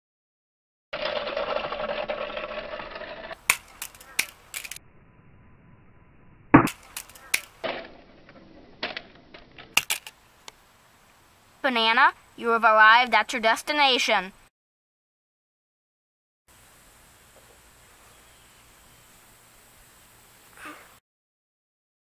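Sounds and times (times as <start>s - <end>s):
toy car rolling over concrete: 1.0s - 4.8s, 6.7s - 10.2s
toy car tumbling down steps: 1.0s - 4.8s.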